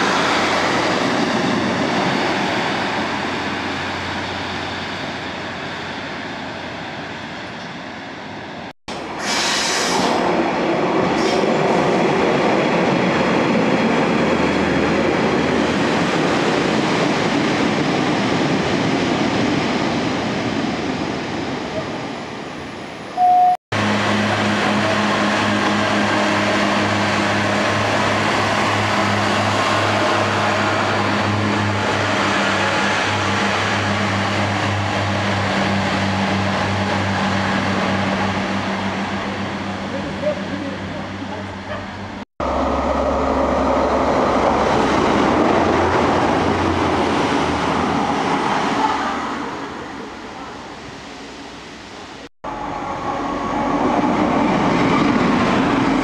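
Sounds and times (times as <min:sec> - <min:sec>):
rush of wheels on rail: 0:00.0 - 0:56.0
train engine drone: 0:00.0 - 0:56.0
short loud tone: 0:23.2 - 0:23.6.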